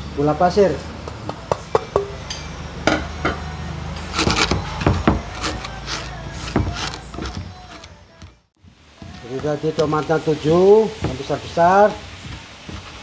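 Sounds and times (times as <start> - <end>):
pestle knocking in mortar: 1.0 - 2.2, 4.2 - 5.6, 9.0 - 13.0.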